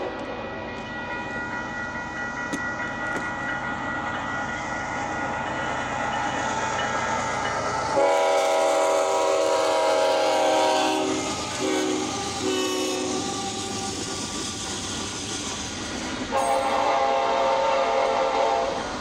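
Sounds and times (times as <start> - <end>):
train rumble and wheel clatter: 0.0 - 19.0
locomotive air horn blasts: 8.0 - 13.3, 16.3 - 18.8.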